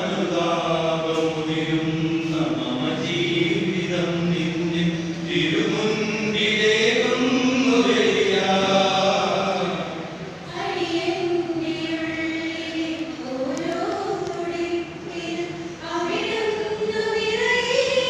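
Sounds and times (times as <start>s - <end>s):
mixed choir singing: 0.0s - 18.0s.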